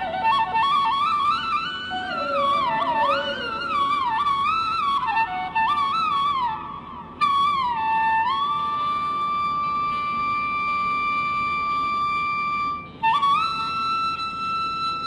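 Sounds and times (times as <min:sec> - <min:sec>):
melody of long sliding notes: 0:01.8 - 0:05.6.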